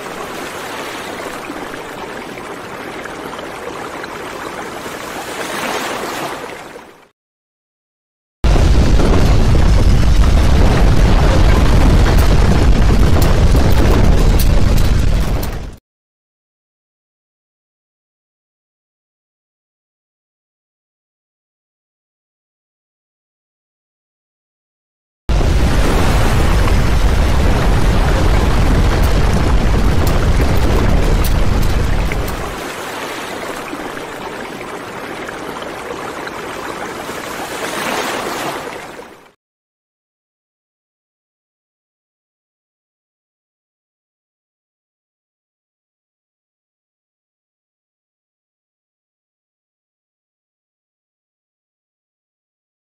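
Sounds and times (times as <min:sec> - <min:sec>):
deep earthquake rumble: 0:08.5 - 0:15.8, 0:25.3 - 0:32.6
steady rushing noise: 0:10.0 - 0:15.8, 0:25.3 - 0:34.4.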